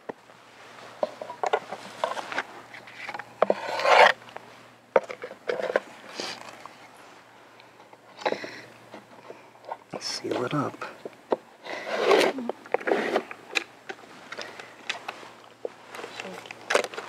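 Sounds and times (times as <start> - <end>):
scraping and rubbing: 0.8 - 4.2, 5.0 - 6.7, 11.6 - 17.0.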